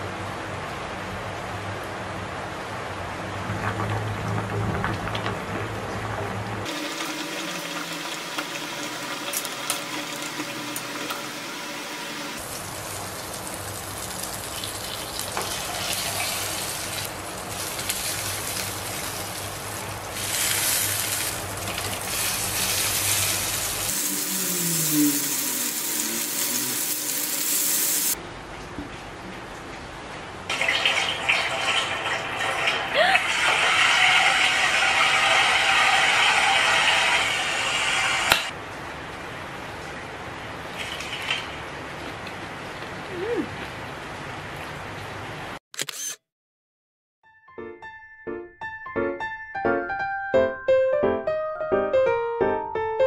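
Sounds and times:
butter sizzling in a frying pan: 6.7s - 28.2s, 33.3s - 38.3s.

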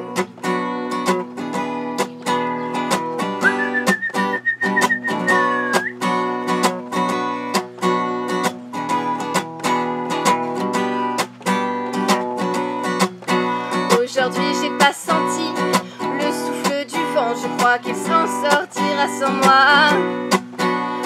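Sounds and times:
acoustic guitar strumming: 0.0s - 21.0s
high whistle-like note: 3.4s - 6.0s.

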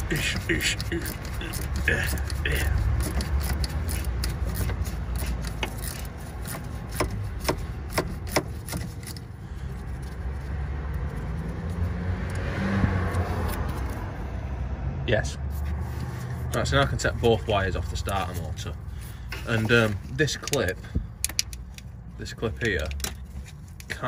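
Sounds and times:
gloved hand rubbing wires: 0.0s - 11.9s, 15.5s - 21.8s
socket ratchet clicking: 0.7s - 9.2s, 20.4s - 22.0s.

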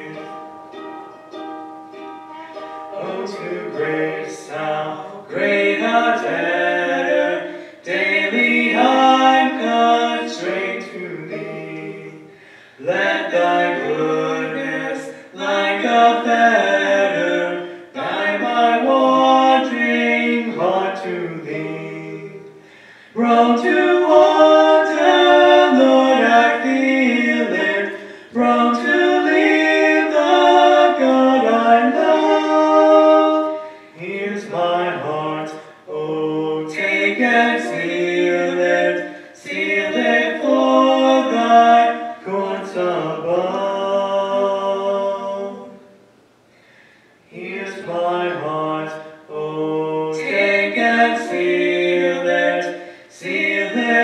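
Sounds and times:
ukulele: 0.0s - 43.7s
woman and man singing: 2.9s - 45.8s.

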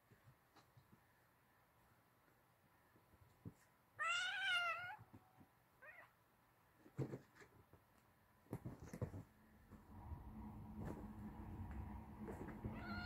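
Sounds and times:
kitten meowing: 4.0s - 5.0s, 12.7s - 13.0s
bedding knocks and rustles: 6.8s - 13.0s.

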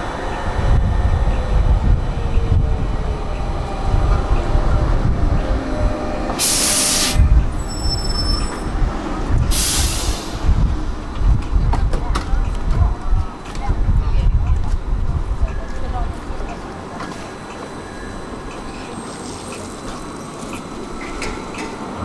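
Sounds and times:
tram wheels rumbling on rails: 0.0s - 22.0s
loud hiss bursts: 9.5s - 10.4s.

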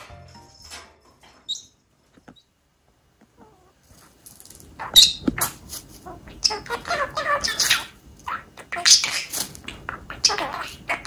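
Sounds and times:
parakeets chattering: 4.7s - 11.0s
parakeet chirp: 4.8s - 11.0s.

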